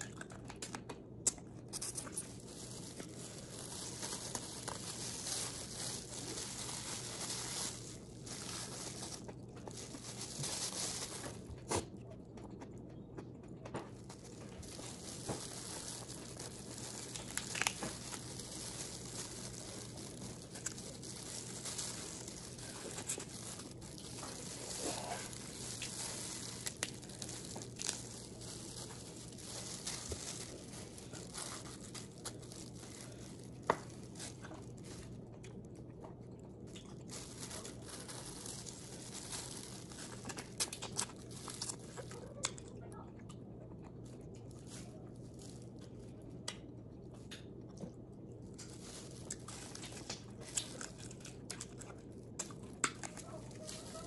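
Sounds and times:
food being chewed with crackles: 0.0 - 54.0
steady low hum: 0.0 - 54.0.

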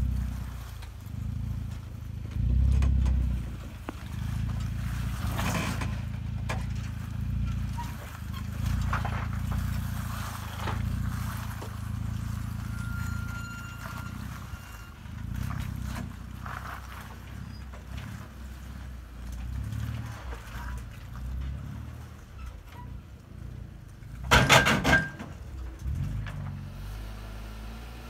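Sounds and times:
truck engine running low: 0.0 - 28.0
scraping crunch on rock: 0.2 - 22.3.

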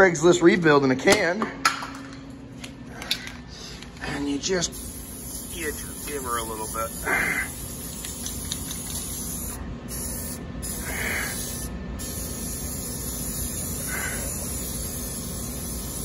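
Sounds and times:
aerosol spray can hissing: 4.8 - 16.0.

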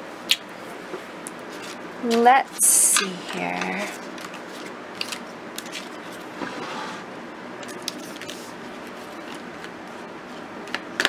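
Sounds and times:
paper rustling: 3.7 - 6.9, 7.6 - 10.4.

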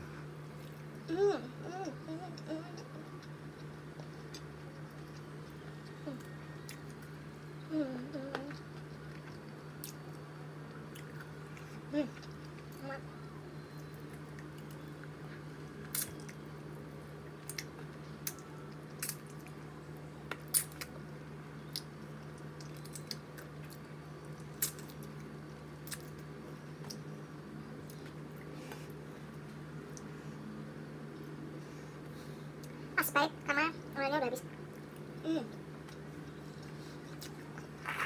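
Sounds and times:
steady low hum: 0.0 - 38.0
lip smacks and chewing clicks: 25.8 - 27.0.

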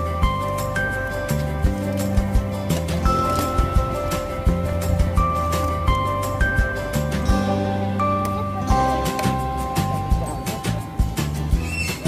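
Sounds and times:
background music with steady beat: 0.0 - 12.0.

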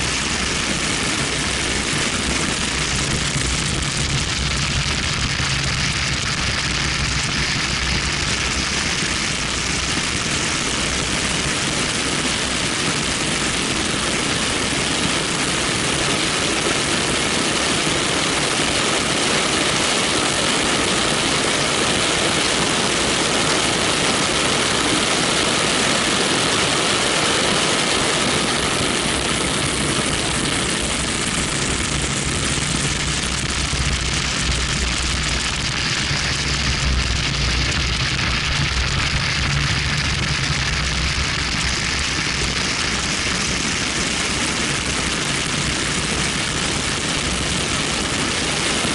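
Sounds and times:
wind rushing over camera: 0.0 - 48.9
car engine: 31.2 - 42.5.

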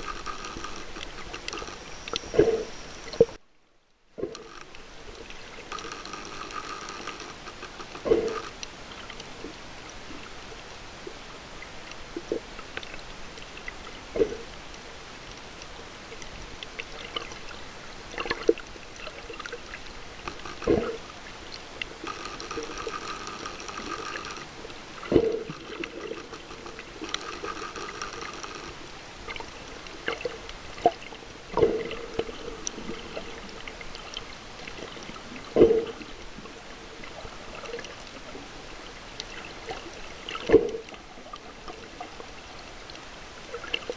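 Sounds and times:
faint high buzzing drone: 0.0 - 3.4, 4.3 - 8.7, 19.6 - 29.9
underwater wash of water: 4.2 - 43.9.

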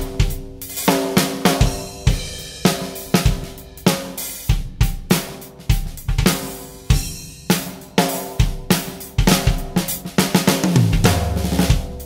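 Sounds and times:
bass drum thumps: 4.5 - 7.2, 10.6 - 12.0.

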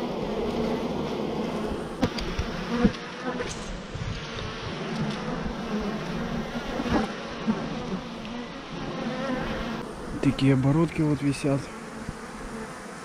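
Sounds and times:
honeybees buzzing: 0.0 - 13.0.

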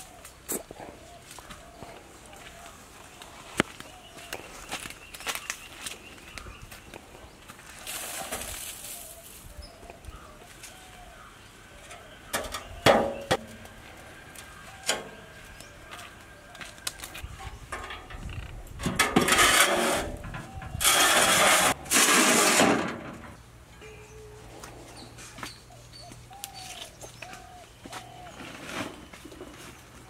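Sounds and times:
loud scraping and rattling: 17.6 - 23.4
metal sheet clanking: 17.6 - 23.4.

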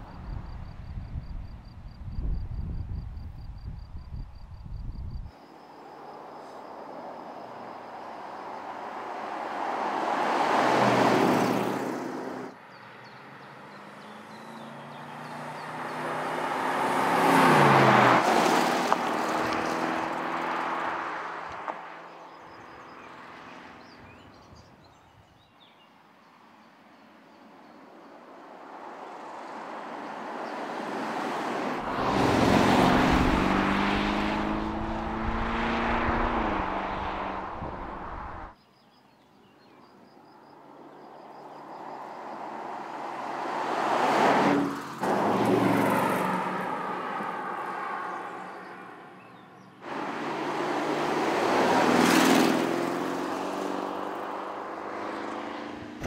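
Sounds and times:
car engine driving past: 29.2 - 38.5.

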